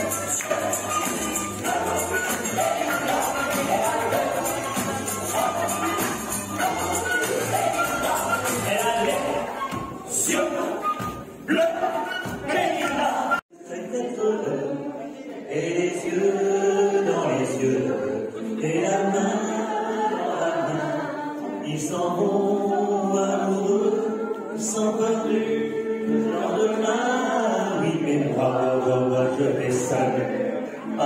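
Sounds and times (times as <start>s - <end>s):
acoustic guitar: 0.0s - 13.4s
man singing into a microphone: 20.4s - 31.0s.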